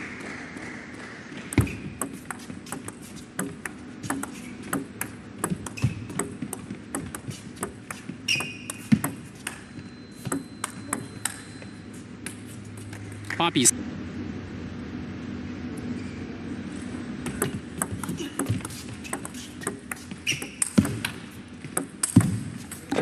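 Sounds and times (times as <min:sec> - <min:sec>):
table tennis ball rally: 0:01.6 - 0:11.7, 0:17.2 - 0:23.0.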